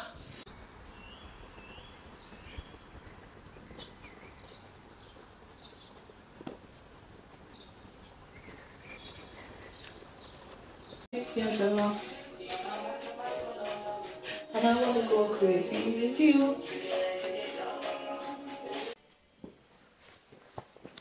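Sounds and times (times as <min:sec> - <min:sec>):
small birds chirping: 0:00.5 - 0:11.8.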